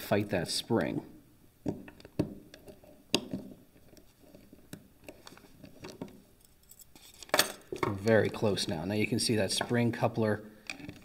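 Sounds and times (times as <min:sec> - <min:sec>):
padlock parts clicking and scraping: 0:06.4 - 0:08.2.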